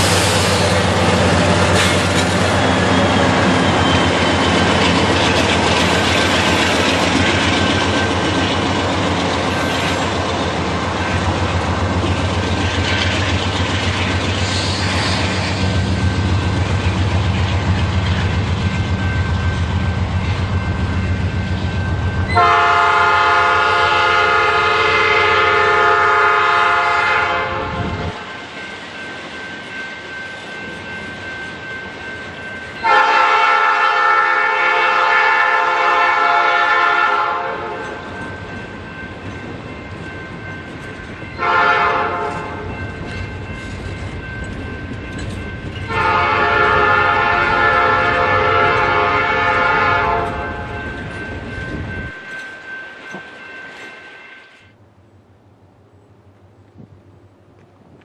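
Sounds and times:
trailers rumbling on rails: 0:00.0 - 0:54.8
locomotive air horn blasts: 0:22.3 - 0:28.1, 0:32.8 - 0:37.8, 0:41.4 - 0:42.6, 0:45.9 - 0:50.6.

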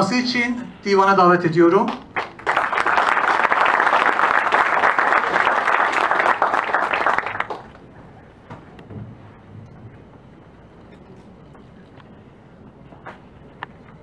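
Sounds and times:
audience applauding: 0:02.1 - 0:07.9.

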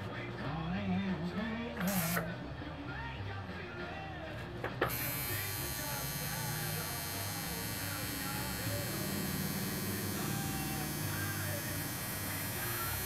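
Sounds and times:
tattoo machine buzzing: 0:01.8 - 0:02.3, 0:04.8 - 0:13.0.

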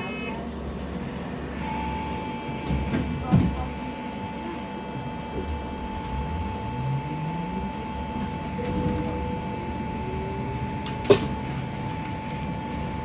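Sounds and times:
street traffic rumble: 0:00.0 - 0:13.0
engine note rising: 0:04.0 - 0:13.0.

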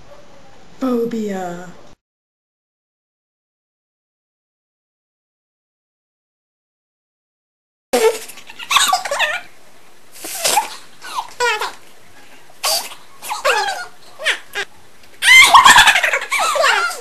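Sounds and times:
girls laughing and giggling: 0:13.3 - 0:17.0.

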